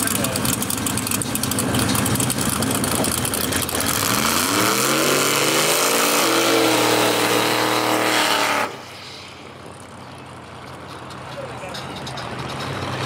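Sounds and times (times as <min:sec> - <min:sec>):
car engine revving: 0:00.0 - 0:09.6.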